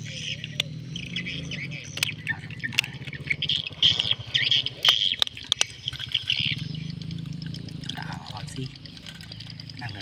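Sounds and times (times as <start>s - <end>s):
birds chirping: 0.0s - 10.0s
low steady hum: 0.0s - 10.0s.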